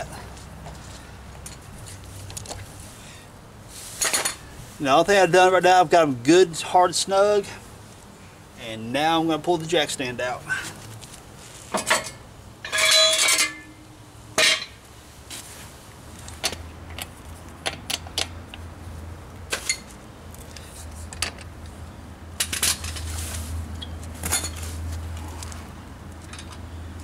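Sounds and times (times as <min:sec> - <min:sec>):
metal tools clanking on concrete: 0:04.0 - 0:04.4, 0:11.7 - 0:13.8, 0:14.4 - 0:14.8, 0:23.8 - 0:24.7.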